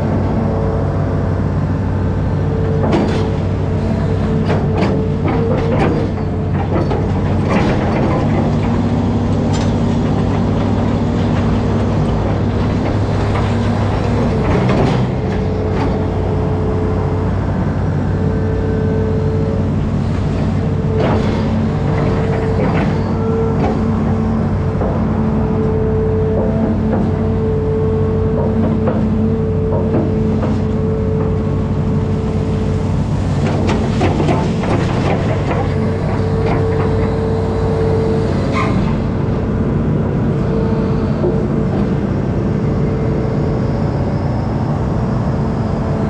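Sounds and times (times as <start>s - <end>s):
diesel engine running: 0.0s - 46.0s
knocks and clanks: 2.7s - 16.2s, 20.2s - 25.7s, 26.3s - 27.5s, 28.3s - 31.4s, 33.2s - 37.4s.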